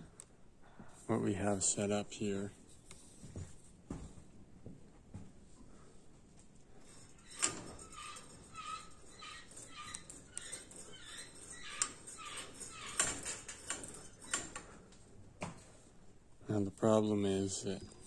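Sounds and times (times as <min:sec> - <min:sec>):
squeaking steel linkages: 0:06.8 - 0:14.9.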